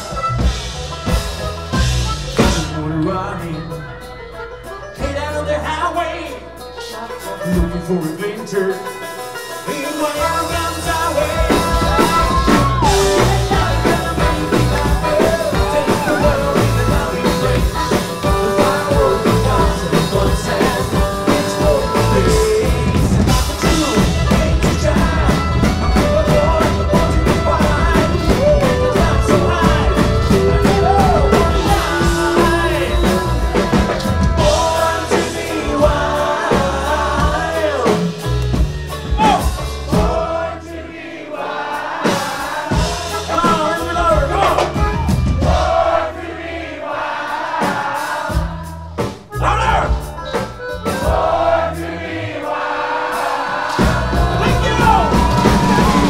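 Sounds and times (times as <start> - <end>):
upright double bass: 0.0 - 8.8, 9.7 - 41.1, 42.6 - 46.6, 48.2 - 52.6, 53.5 - 56.0
banjo: 0.0 - 40.7
accordion: 0.0 - 56.0
lead singer: 2.4 - 50.2, 50.8 - 56.0.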